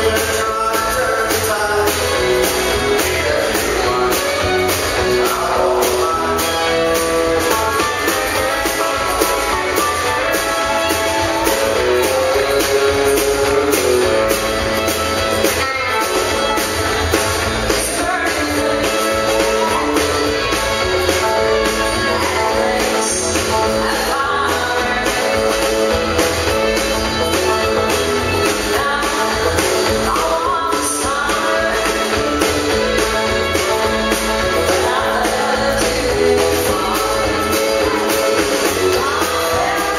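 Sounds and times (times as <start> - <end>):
live country band playing: 0.0 - 39.9
woman singing lead vocal: 17.7 - 20.5, 21.4 - 26.2, 28.3 - 39.9.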